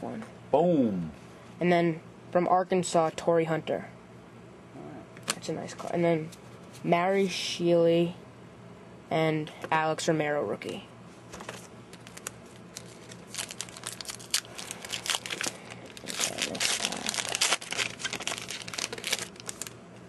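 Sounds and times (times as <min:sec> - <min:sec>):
wrapper crinkling as torn open: 0:11.9 - 0:19.8.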